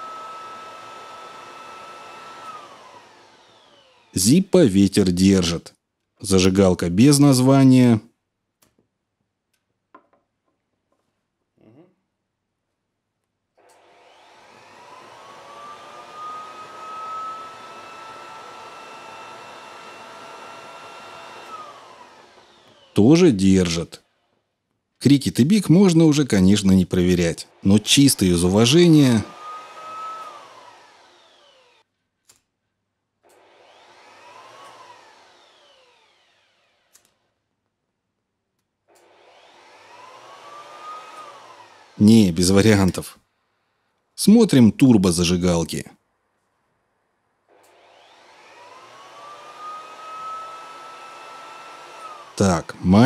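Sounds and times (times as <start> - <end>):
air blower motor whining: 0.0 - 4.4, 13.6 - 23.5, 25.7 - 31.8, 33.3 - 36.7, 39.0 - 43.0, 47.5 - 53.0.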